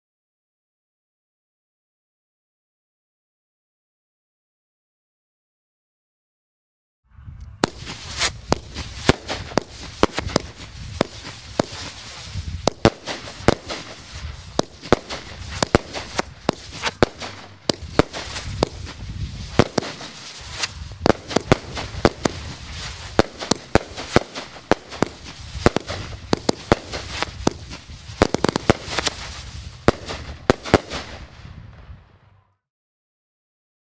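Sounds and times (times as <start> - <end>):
firework cake bangs: 7.6 - 31.2
firework hiss and crackle: 7.6 - 32.0.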